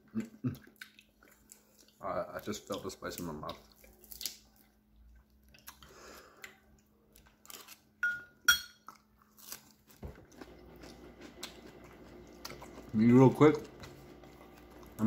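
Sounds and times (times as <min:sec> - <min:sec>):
chewing with mouth clicks: 0:00.0 - 0:07.8, 0:08.8 - 0:15.0
metal spoon clinking on bowl: 0:08.0 - 0:08.9.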